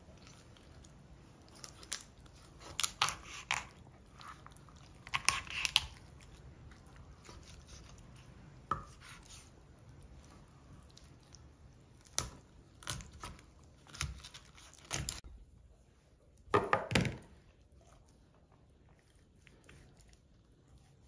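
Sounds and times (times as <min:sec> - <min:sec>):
knife cutting through bone: 0:05.0 - 0:06.0.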